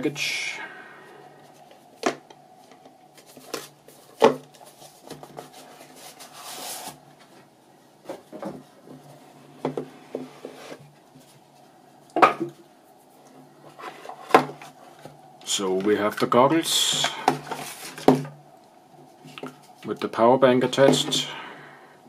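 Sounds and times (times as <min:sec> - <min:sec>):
cardboard scraping rub: 0:03.4 - 0:07.0, 0:10.0 - 0:10.9.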